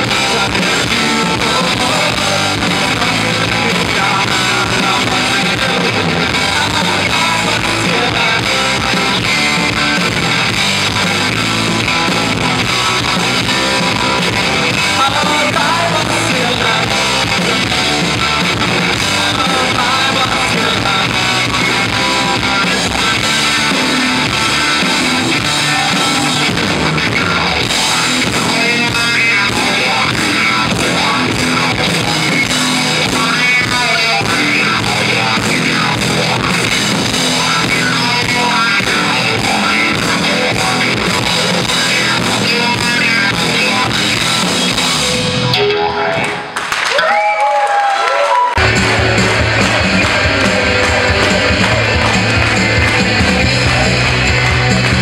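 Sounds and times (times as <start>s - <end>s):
drum kit: 0.0s - 46.9s, 48.5s - 55.0s
bass guitar: 0.0s - 55.0s
electric guitars: 0.0s - 55.0s.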